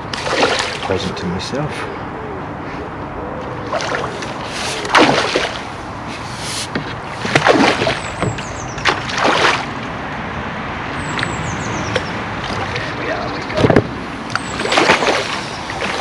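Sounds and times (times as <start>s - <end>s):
fish splashing in water: 0.0s - 1.1s, 3.7s - 10.0s, 11.0s - 16.0s.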